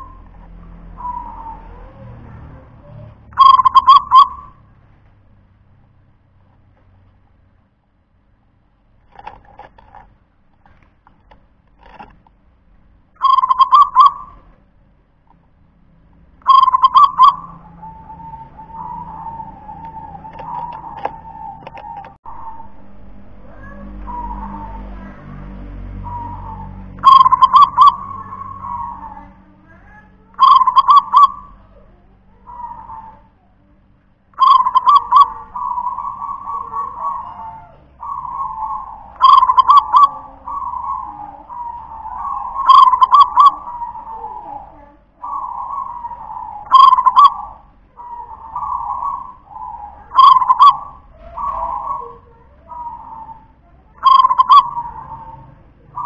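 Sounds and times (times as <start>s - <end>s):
dove cooing: 0.0s - 4.6s, 13.2s - 14.5s, 16.4s - 22.8s, 23.4s - 25.3s, 26.0s - 33.7s, 34.3s - 56.0s.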